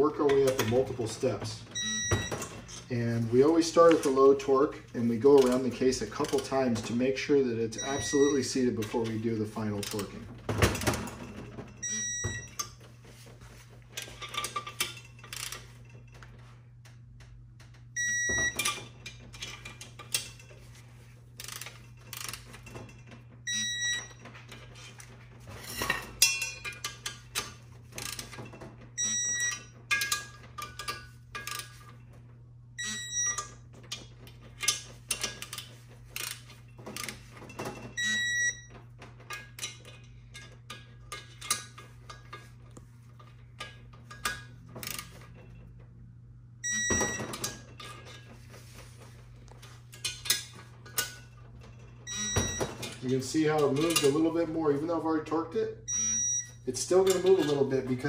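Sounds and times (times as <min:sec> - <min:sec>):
digital torque wrench beeping: 0:01.8 - 0:02.5, 0:07.8 - 0:08.6, 0:11.8 - 0:12.6, 0:18.0 - 0:18.7, 0:23.4 - 0:24.2, 0:29.0 - 0:29.7, 0:32.8 - 0:33.5, 0:38.0 - 0:38.7, 0:46.6 - 0:47.3, 0:52.0 - 0:52.7, 0:55.9 - 0:56.6.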